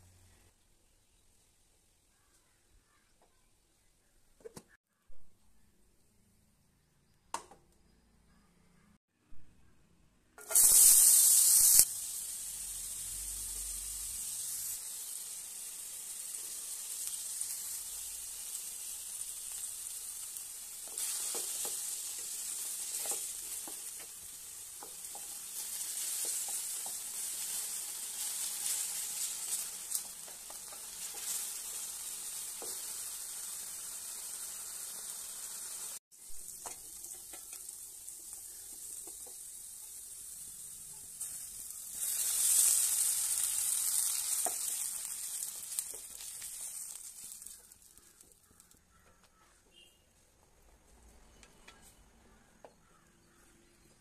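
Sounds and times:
vegetables sizzling in hot oil: 10.4s - 48.8s
spatula scraping and tapping pan: 20.8s - 33.0s, 36.5s - 39.5s, 44.2s - 49.9s.

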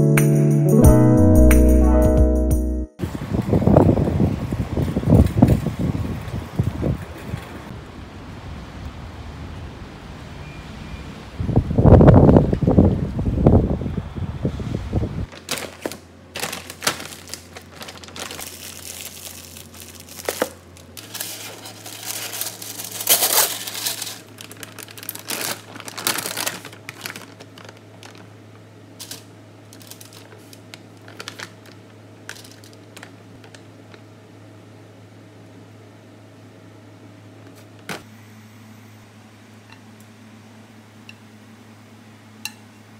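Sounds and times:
wind buffeting microphone: 3.0s - 7.7s, 11.3s - 15.3s
low steady hum: 15.2s - 42.9s
plastic bag crinkling: 15.3s - 28.4s, 29.0s - 34.0s.

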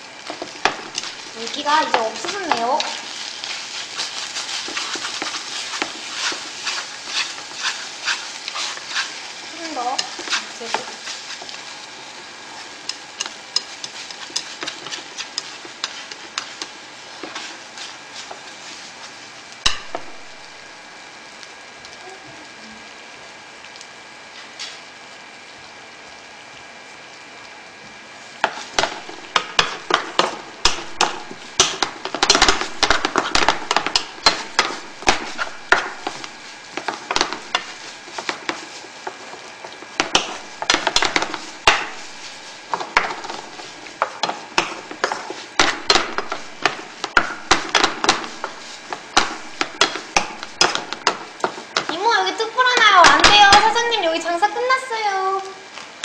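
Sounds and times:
food sizzling in a frying pan: 0.0s - 56.0s
spatula scraping a pan: 0.2s - 20.4s, 28.4s - 52.1s.

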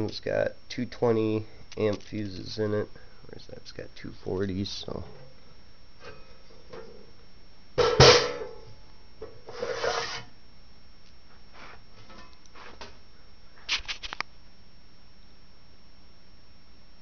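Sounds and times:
scraping rub: 9.5s - 10.3s.

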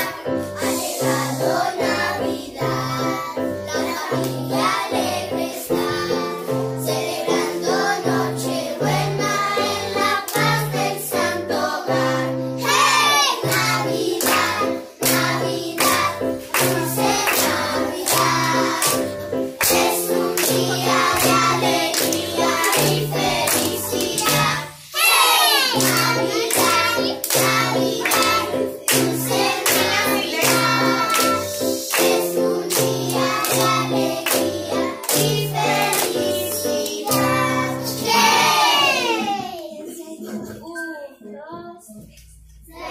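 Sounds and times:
children singing: 0.0s - 40.6s, 42.6s - 42.9s
clapping on the beat: 13.5s - 24.6s, 25.8s - 37.4s.

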